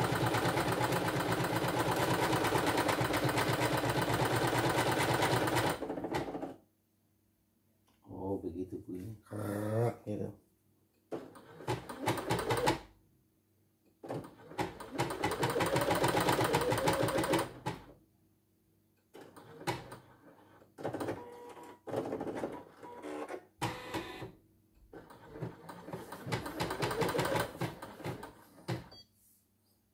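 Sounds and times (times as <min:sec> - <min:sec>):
embroidery machine stitching: 0:00.0 - 0:06.5, 0:11.1 - 0:12.8, 0:14.0 - 0:17.9, 0:19.1 - 0:24.3, 0:24.9 - 0:28.9.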